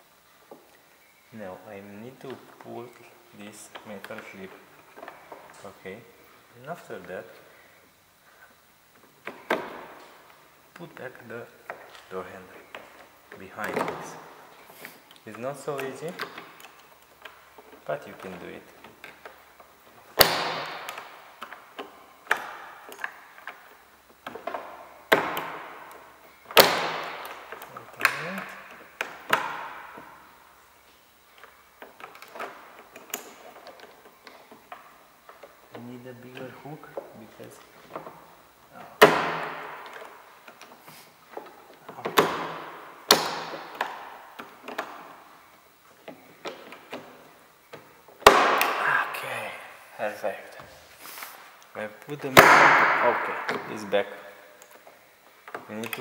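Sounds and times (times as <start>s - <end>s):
door handle clicks and snaps: 20.2s - 23.6s, 24.2s - 30.1s, 39.0s - 45.2s.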